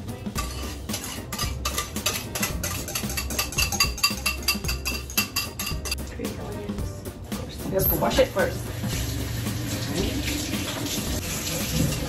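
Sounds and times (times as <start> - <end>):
whisk clinking against bowl: 0.4 - 6.0.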